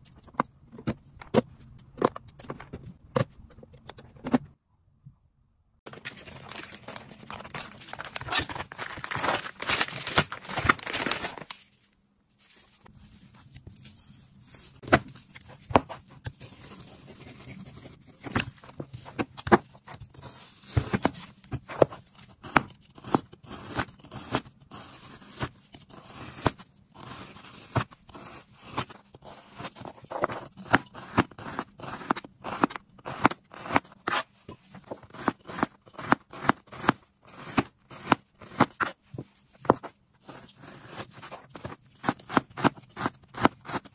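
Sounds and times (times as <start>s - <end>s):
plastic wrap crinkling: 5.9s - 11.8s.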